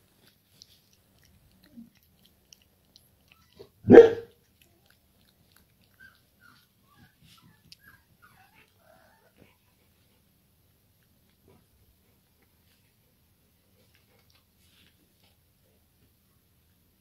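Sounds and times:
puppy chewing and lapping: 0:00.0 - 0:17.0
puppy barking: 0:03.6 - 0:04.4.

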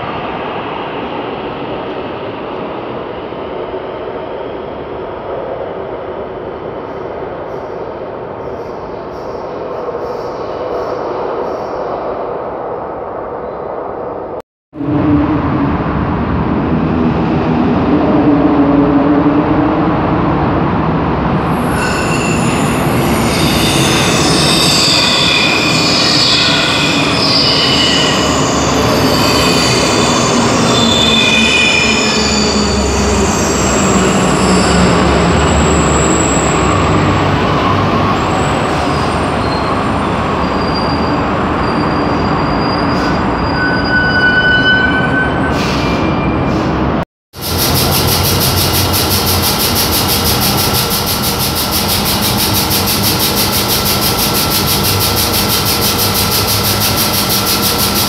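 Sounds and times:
subway train rushing by: 0:00.0 - 0:58.0
high squealing and whining: 0:21.5 - 0:45.5, 0:47.4 - 0:58.0.

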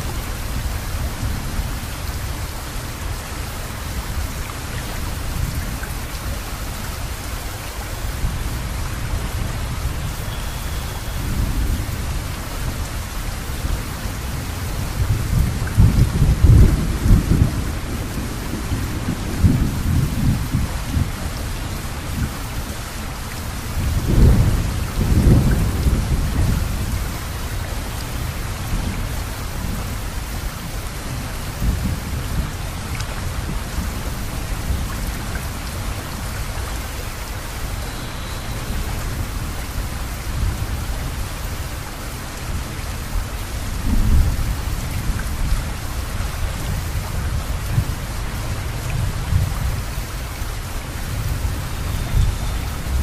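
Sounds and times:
rain hissing: 0:00.0 - 0:53.0
thunder rumbling: 0:23.8 - 0:27.3.

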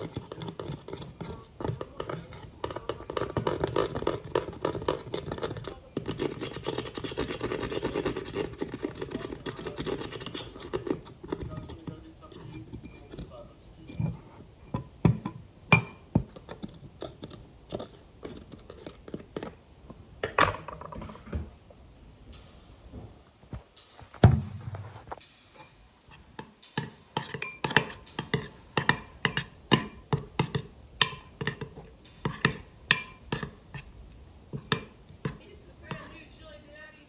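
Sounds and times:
spoon stirring in glass bowl: 0:00.0 - 0:19.6, 0:25.6 - 0:33.9, 0:34.5 - 0:36.2.

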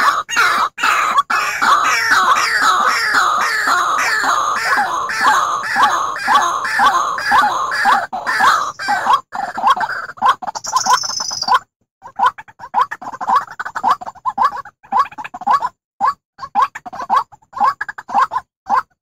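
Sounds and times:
waterhen calling: 0:00.0 - 0:11.5.

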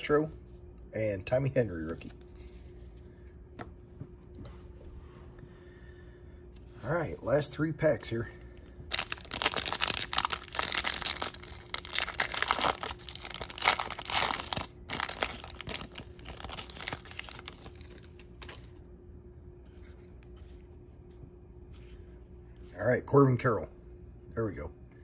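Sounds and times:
wrapper tearing and crinkling: 0:08.9 - 0:18.6.

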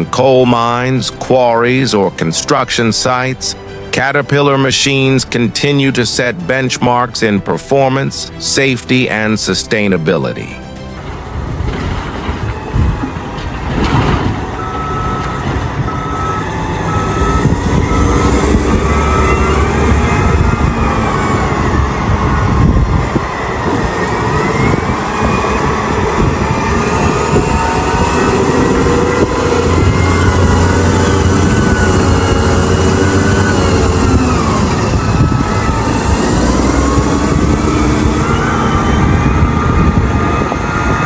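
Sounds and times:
wheel loader diesel engine: 0:00.0 - 0:41.0
high whine: 0:14.4 - 0:41.0.

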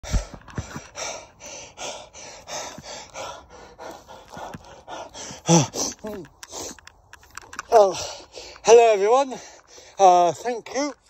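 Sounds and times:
man panting: 0:00.0 - 0:06.9, 0:07.6 - 0:10.6.

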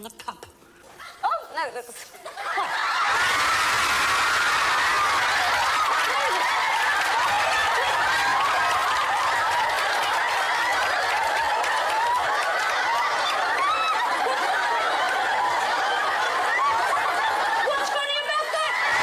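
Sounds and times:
studio audience laughing: 0:02.2 - 0:19.0.

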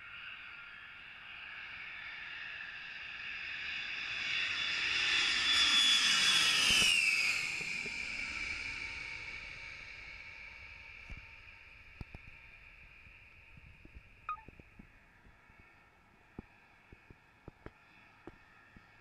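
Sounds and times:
jet aircraft flying low overhead: 0:00.0 - 0:14.4.

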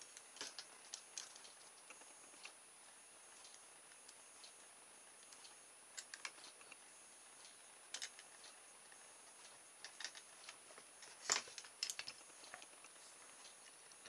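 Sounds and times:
small clicks and light knocks: 0:07.4 - 0:09.0, 0:09.8 - 0:14.0.

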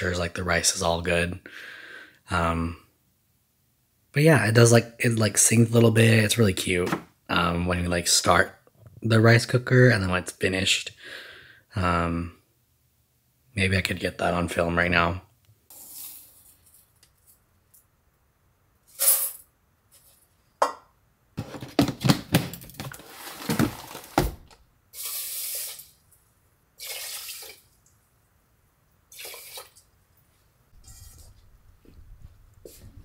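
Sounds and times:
water pouring into pot: 0:26.8 - 0:27.8, 0:29.1 - 0:29.8.

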